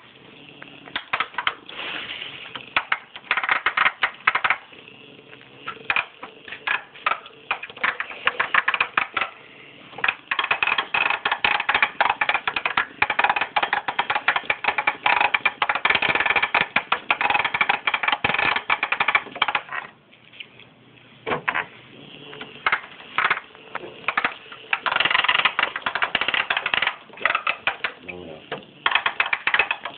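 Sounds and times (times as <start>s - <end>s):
toy robot bug rattling: 2.8s - 4.6s, 10.0s - 19.6s, 24.1s - 28.0s, 28.8s - 29.9s.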